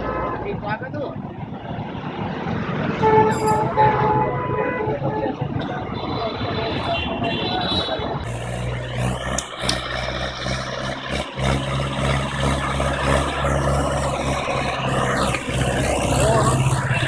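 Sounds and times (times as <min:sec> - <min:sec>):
tractor engine under load: 0:05.4 - 0:17.0
tractor diesel engine running: 0:08.0 - 0:17.0.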